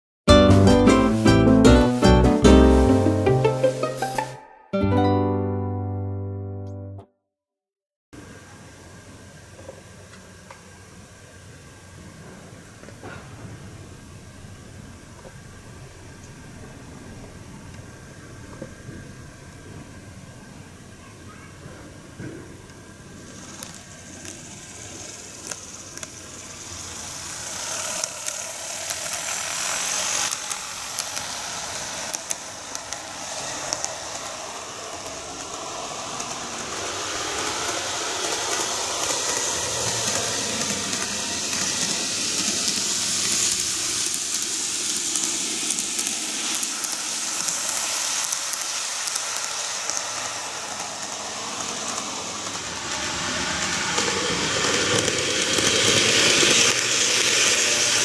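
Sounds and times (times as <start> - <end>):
model train wheels hissing on rail: 0.8 - 4.3, 8.2 - 58.0.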